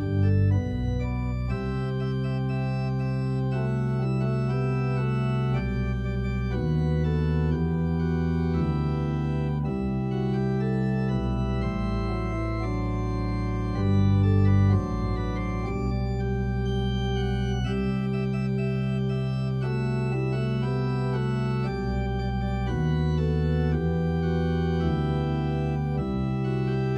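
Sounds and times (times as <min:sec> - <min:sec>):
organ playing slow chords: 0:00.0 - 0:26.9.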